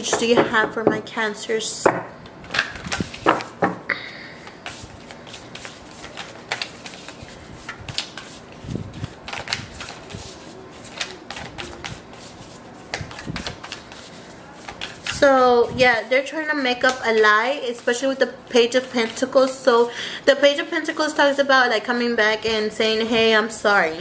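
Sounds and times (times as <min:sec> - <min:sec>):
cards being shuffled: 0:02.4 - 0:03.8, 0:04.4 - 0:15.3.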